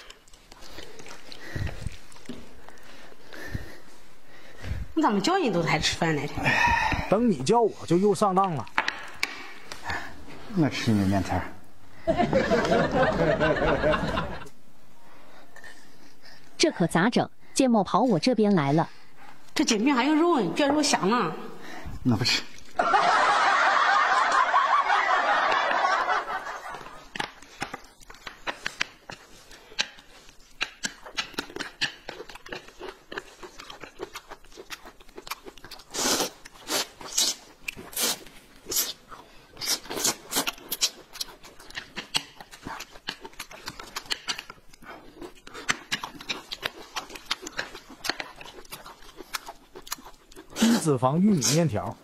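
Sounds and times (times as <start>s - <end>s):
noodles being slurped: 0.0s - 4.0s, 26.4s - 51.8s
food chewing: 0.0s - 11.8s, 22.0s - 22.8s, 24.4s - 52.0s.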